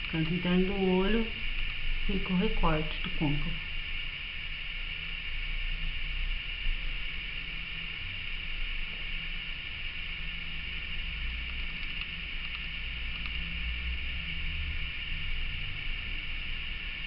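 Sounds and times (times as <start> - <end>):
low hum: 0.0 - 17.0
steady hiss: 0.0 - 17.0
faint ticks: 11.4 - 13.6.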